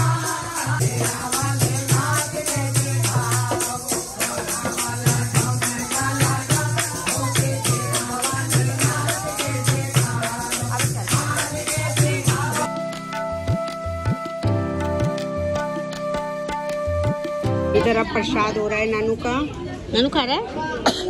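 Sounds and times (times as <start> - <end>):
devotional song being sung: 0.0 - 15.6
jingling hand percussion: 0.0 - 18.3.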